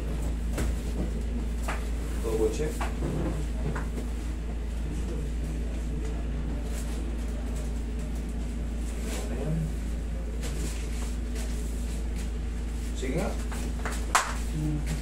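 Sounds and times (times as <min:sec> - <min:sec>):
low room hum: 0:00.0 - 0:15.0.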